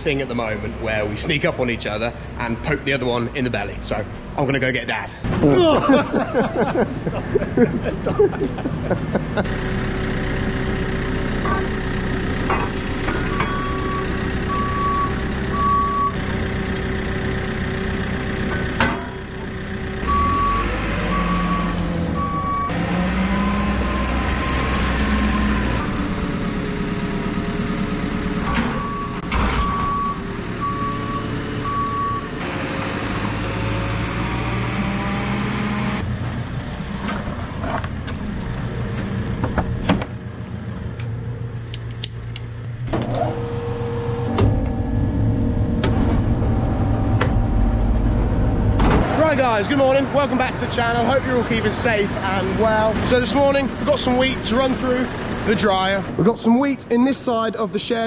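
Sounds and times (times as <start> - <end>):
diesel engine revving: 0.0 - 57.5
reversing alarm beeping: 12.9 - 16.6, 20.0 - 32.4.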